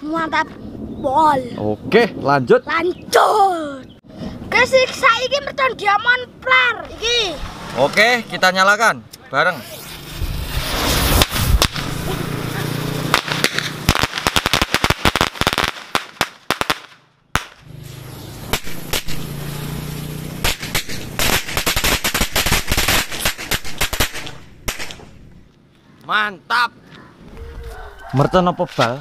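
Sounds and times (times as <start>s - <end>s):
firecrackers cracking rapidly: 9.6s - 17.7s, 18.4s - 25.2s
firecrackers fizzing: 9.6s - 25.2s.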